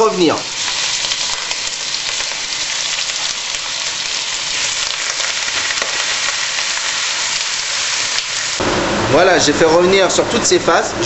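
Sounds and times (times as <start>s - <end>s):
beef sizzling in butter: 0.0s - 8.6s.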